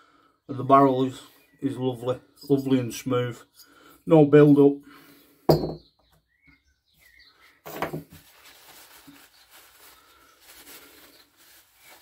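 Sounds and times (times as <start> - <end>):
metal part knocking on wooden bench: 5.5 - 5.9
paper towel rubbing: 8.1 - 12.0.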